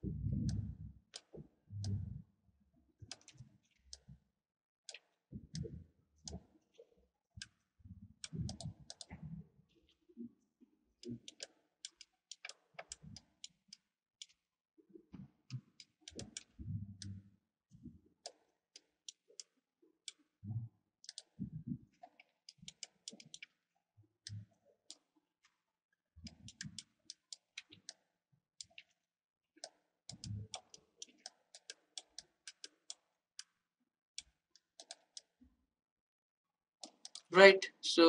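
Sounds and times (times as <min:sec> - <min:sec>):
mouse and keyboard clicks: 0:21.1 - 0:21.4, 0:22.0 - 0:23.6, 0:29.6 - 0:33.6, 0:34.2 - 0:35.3, 0:36.8 - 0:37.3.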